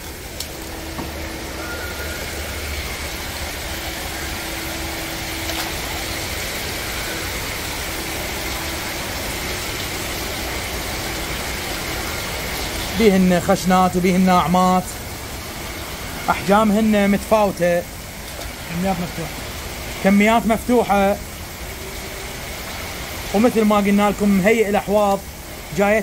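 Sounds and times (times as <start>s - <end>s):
faint steady tone: 0.0s - 18.0s
even hiss: 0.0s - 26.0s
machinery hum: 0.0s - 26.0s.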